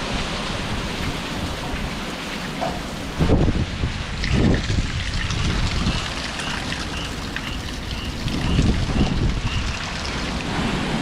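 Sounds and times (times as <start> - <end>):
wind and heavy rain: 0.0 - 11.0
wind buffeting microphone: 0.0 - 11.0.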